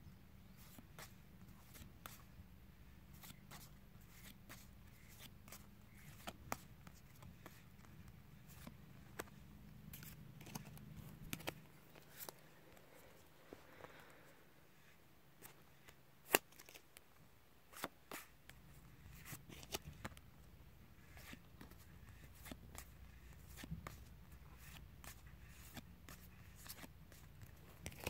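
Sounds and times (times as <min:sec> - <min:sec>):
cards clicking and rustling: 0:03.2 - 0:12.8, 0:15.4 - 0:17.0, 0:17.7 - 0:20.2, 0:21.0 - 0:28.0.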